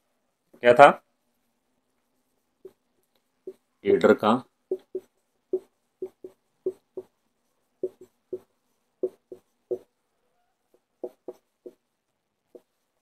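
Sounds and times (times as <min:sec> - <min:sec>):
pen tapping strokes writing: 0:02.4 - 0:03.7, 0:04.6 - 0:10.0, 0:10.7 - 0:13.0.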